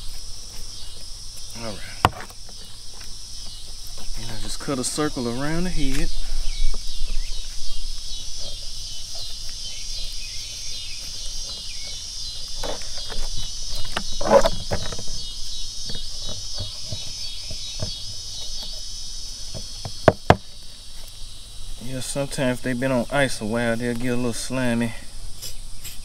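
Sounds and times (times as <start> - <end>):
high insect chorus: 0.0 - 26.0.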